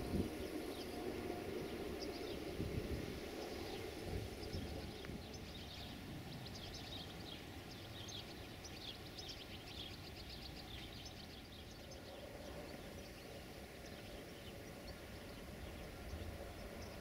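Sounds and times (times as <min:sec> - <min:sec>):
low steady rumble: 0:00.0 - 0:07.8
small birds chirping: 0:00.3 - 0:17.0.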